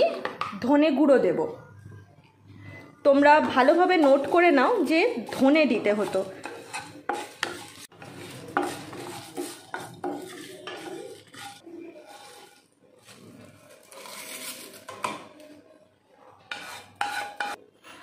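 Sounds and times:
wooden spatula scraping a pan: 3.4s - 15.1s, 16.4s - 17.6s.

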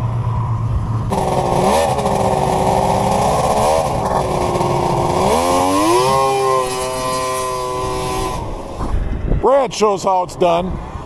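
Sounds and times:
snowmobile engine running: 1.1s - 9.0s.

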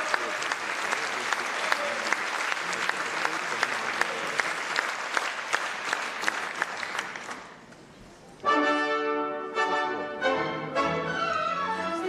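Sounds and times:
audience applause: 0.0s - 7.6s
orchestra chord: 8.4s - 12.0s.

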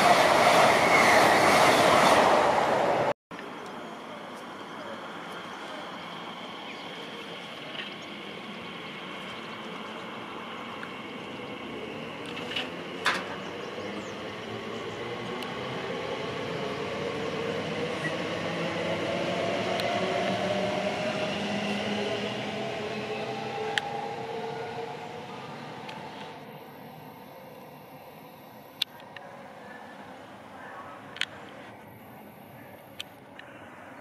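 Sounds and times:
train wheels rumbling on rails: 7.1s - 26.4s
electric train motor whine: 19.7s - 28.9s.

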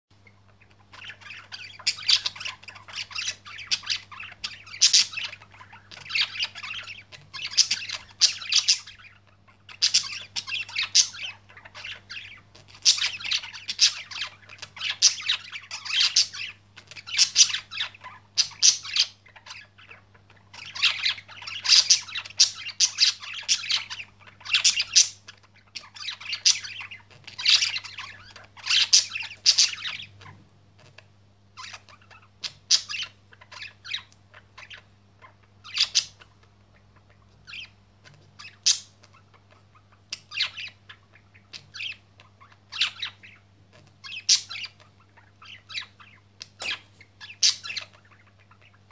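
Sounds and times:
faint low hum: 0.1s - 48.9s
budgerigars chattering: 0.2s - 48.9s.

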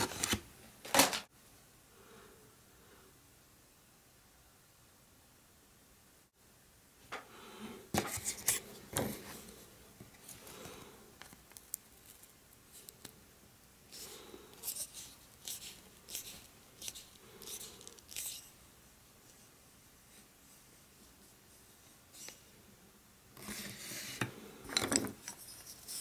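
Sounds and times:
bamboo stick scraping: 13.9s - 18.6s.

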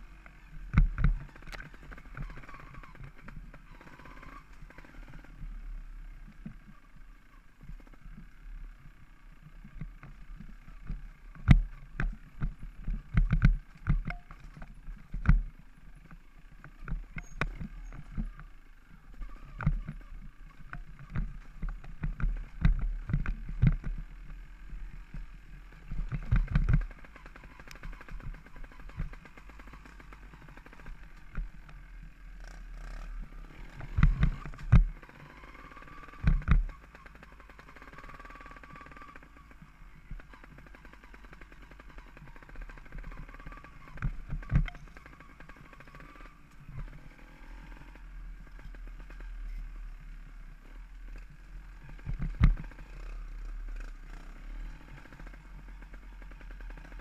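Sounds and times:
wind rumble on microphone: 33.0s - 35.0s.

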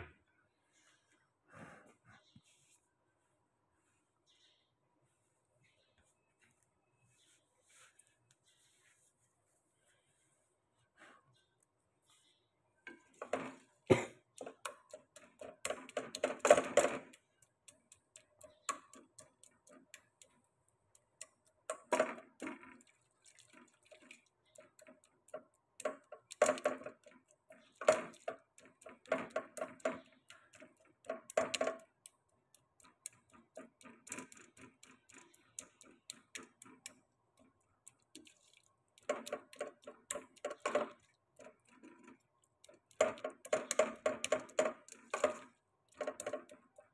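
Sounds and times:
plastic spatula scraping pot: 12.9s - 20.1s, 21.7s - 32.0s, 32.8s - 46.9s.

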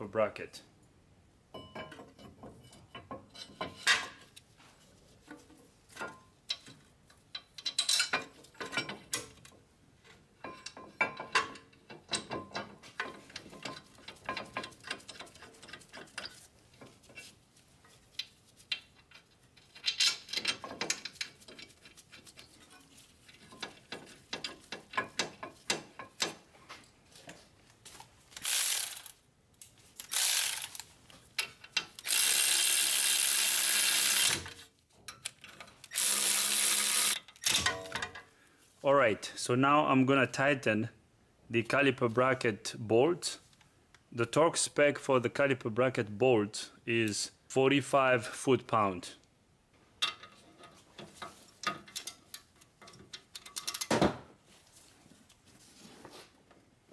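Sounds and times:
metal clinks and knocks: 1.5s - 4.3s, 5.3s - 9.4s, 10.4s - 17.2s
cordless ratchet running: 35.9s - 37.2s.

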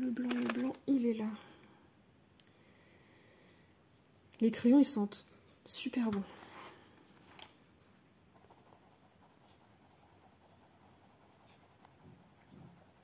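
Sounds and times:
pencil scratching on paper: 8.3s - 13.0s.

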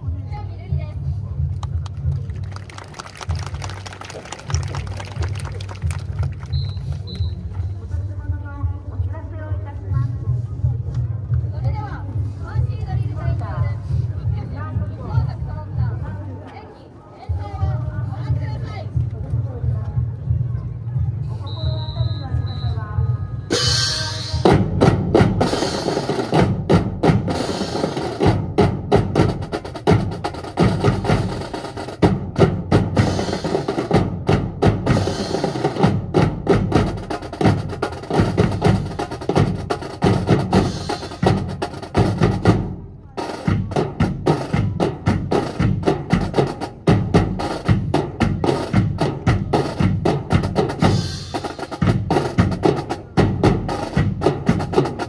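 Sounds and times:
snare and bass drums marching cadence: 0.6s - 8.4s, 23.5s - 55.0s.

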